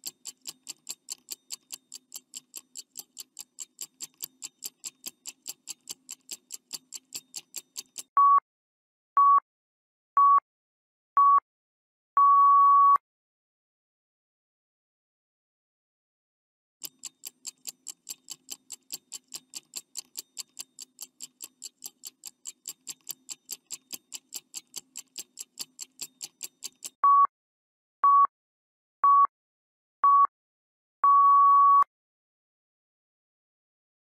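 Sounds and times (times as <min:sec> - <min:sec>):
clock ticking quickly: 0:00.0 - 0:08.1, 0:16.8 - 0:27.0
short beeps: 0:08.2 - 0:08.4, 0:12.2 - 0:13.0, 0:27.0 - 0:27.3, 0:28.0 - 0:28.3, 0:29.0 - 0:29.3, 0:30.0 - 0:30.3, 0:31.0 - 0:31.9.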